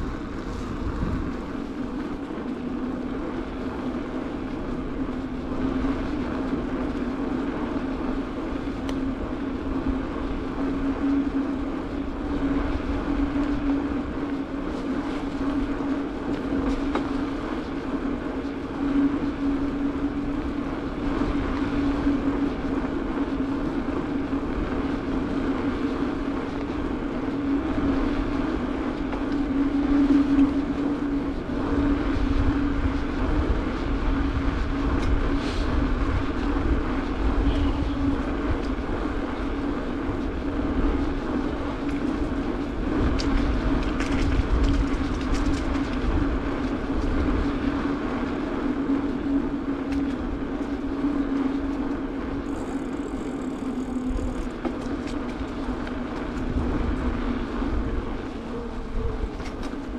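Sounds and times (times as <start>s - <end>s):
bike tyre hum on asphalt: 0.0s - 59.9s
road and air noise rumble: 0.0s - 59.9s.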